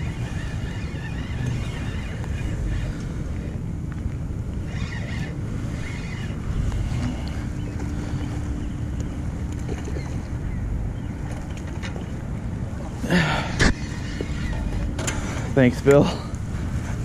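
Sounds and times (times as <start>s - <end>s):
faint steady hum: 0.0s - 17.0s
wind rumble on microphone: 0.0s - 17.0s
fishing reel cranking: 4.6s - 7.1s.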